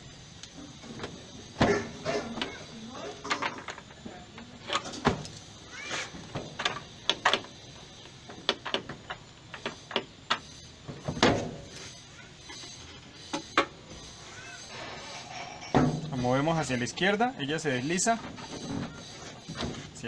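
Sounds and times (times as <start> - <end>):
short squeaks: 5.7 - 6.2, 11.8 - 16.9.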